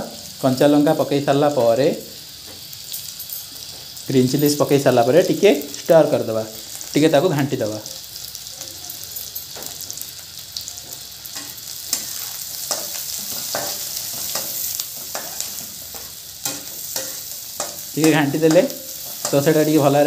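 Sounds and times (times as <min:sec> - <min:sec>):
onions sizzling in hot oil: 0:00.0 - 0:20.0
metal spatula scraping pan: 0:11.4 - 0:19.7.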